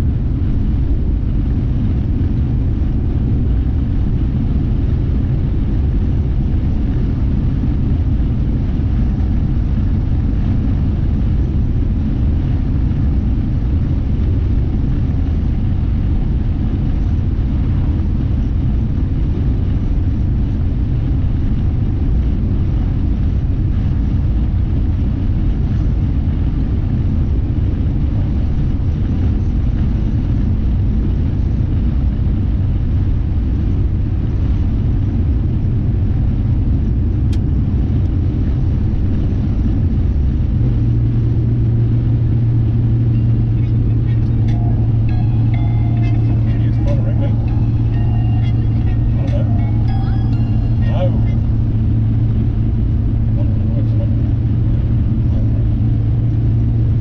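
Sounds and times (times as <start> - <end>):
car interior road noise: 0.0 - 57.0.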